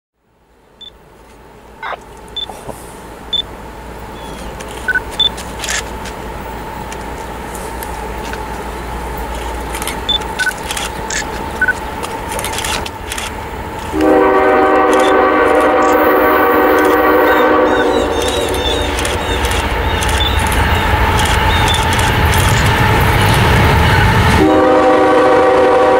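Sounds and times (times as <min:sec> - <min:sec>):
locomotive rumble: 0:00.4 - 0:25.9
locomotive air horn blast: 0:13.9 - 0:18.8, 0:24.3 - 0:25.9.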